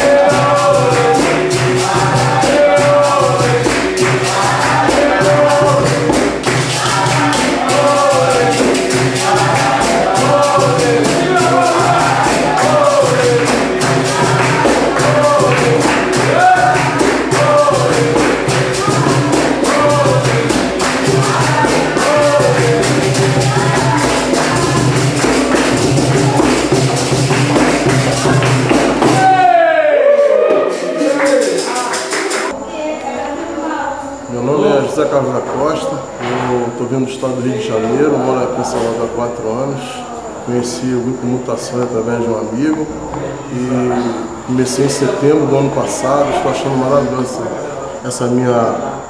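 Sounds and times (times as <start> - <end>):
hand clapping: 0.0 - 29.5, 30.5 - 32.6
berimbaus and percussion: 0.0 - 47.6
group singing together: 0.0 - 49.0.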